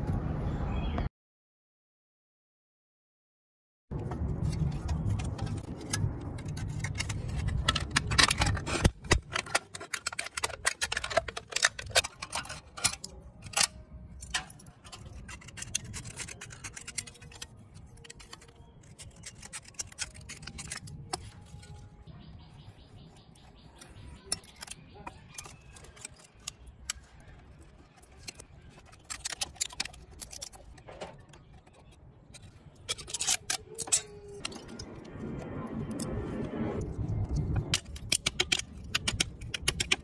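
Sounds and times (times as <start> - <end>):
aluminium sheet crinkling: 3.9 - 40.0
metal tools scraping sheet: 4.0 - 22.0.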